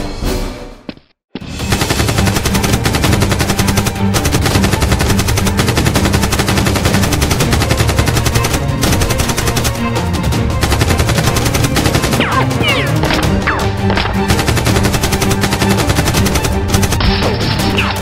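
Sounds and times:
background music: 0:00.0 - 0:18.0
automatic gunfire bursts: 0:01.7 - 0:09.8, 0:10.6 - 0:12.6, 0:14.3 - 0:17.0.

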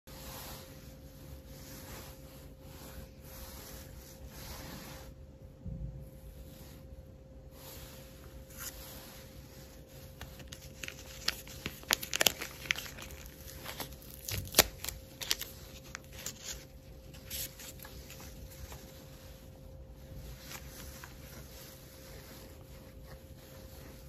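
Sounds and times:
wipe rubbing on phone screen: 0:00.1 - 0:05.2, 0:06.3 - 0:11.5, 0:17.7 - 0:24.0
foil sachet crinkling and tearing: 0:10.2 - 0:18.4.

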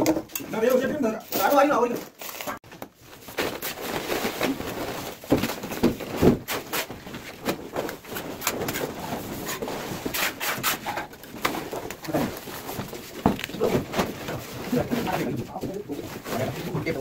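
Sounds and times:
plastering tools scraping plaster: 0:03.6 - 0:17.0.

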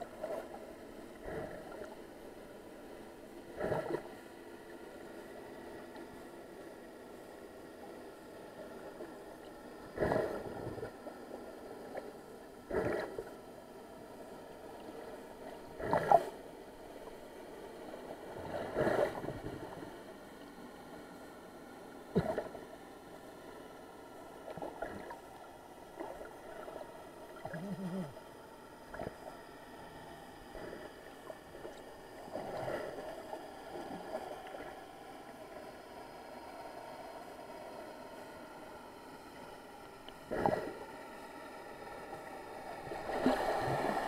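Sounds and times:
water splashing and sloshing: 0:00.0 - 0:02.1, 0:03.5 - 0:06.2, 0:08.8 - 0:13.4, 0:14.7 - 0:20.5, 0:22.1 - 0:22.7, 0:24.3 - 0:35.3, 0:39.9 - 0:44.0.

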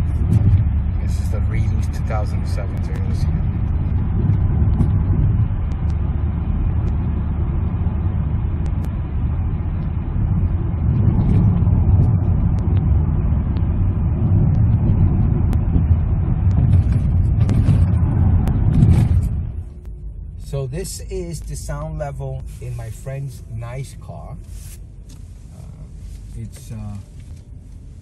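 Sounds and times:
tyre and engine rumble in car cabin: 0:00.0 - 0:28.0.

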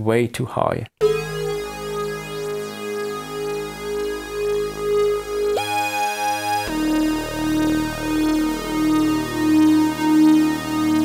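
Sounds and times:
held low synth note: 0:01.0 - 0:11.0
piercing synthesizer lead: 0:01.0 - 0:11.0.

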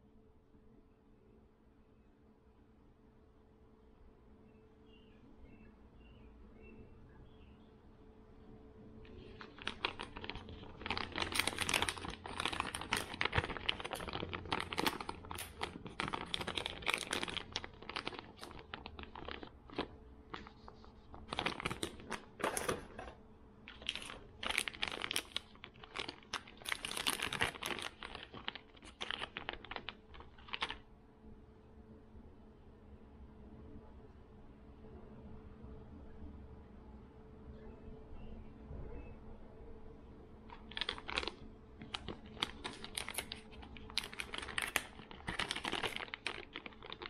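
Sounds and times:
plastic packaging crinkling: 0:09.0 - 0:30.9, 0:40.5 - 0:47.0.

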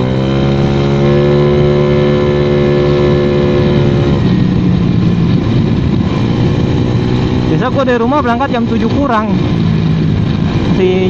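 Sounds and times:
scooter engine accelerating: 0:00.0 - 0:11.0.

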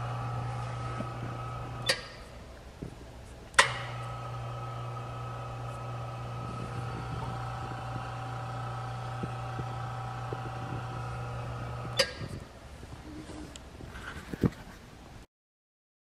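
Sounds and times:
machine humming: 0:00.0 - 0:12.7.

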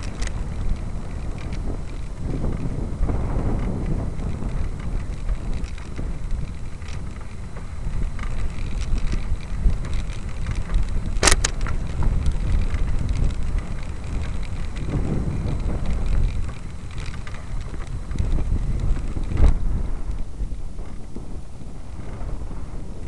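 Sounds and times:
wind buffeting microphone: 0:00.0 - 0:23.0
sharp double click: 0:11.2 - 0:11.6.

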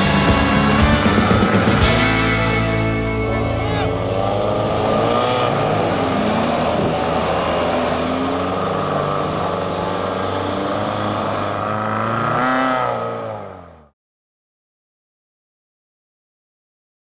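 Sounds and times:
pickup engine revving: 0:00.0 - 0:13.9
tyres spinning through mud: 0:03.4 - 0:13.2.

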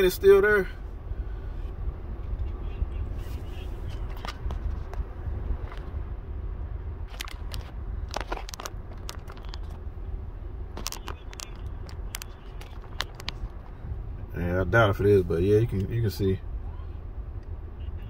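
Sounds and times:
car cabin rumble: 0:00.0 - 0:18.0
phone handling clicks and rustles: 0:03.9 - 0:05.9, 0:07.1 - 0:09.9, 0:10.7 - 0:13.8.

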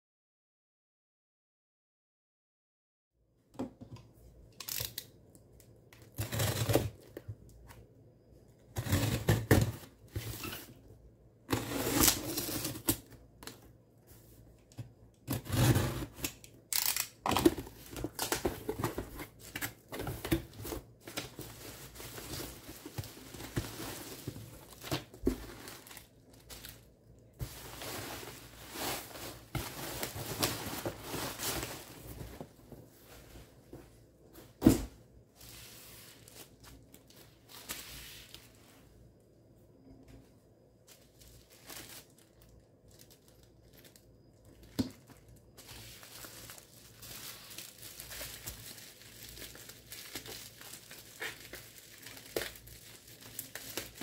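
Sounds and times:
packing tape tearing from box: 0:04.6 - 0:05.1, 0:06.1 - 0:07.0, 0:08.8 - 0:09.8, 0:11.5 - 0:13.1, 0:15.2 - 0:21.4
bubble wrap crinkling: 0:15.2 - 0:32.6, 0:40.9 - 0:54.0.

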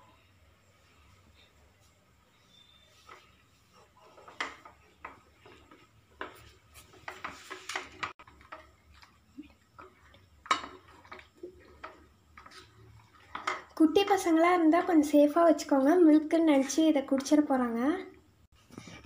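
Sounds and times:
plastic spoon scraping and knocking bowl: 0:03.0 - 0:14.2.

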